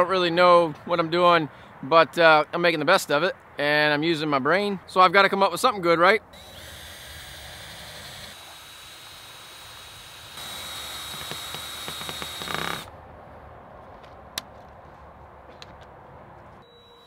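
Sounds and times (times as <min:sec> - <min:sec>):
cordless drill running: 0:06.4 - 0:12.9.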